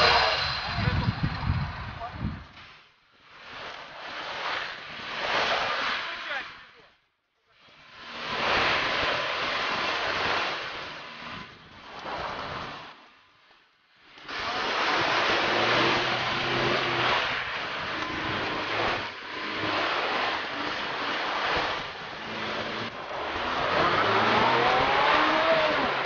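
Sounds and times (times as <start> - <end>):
loud rushing noise: 0.0 - 2.5, 14.3 - 26.0
car engine: 0.0 - 26.0.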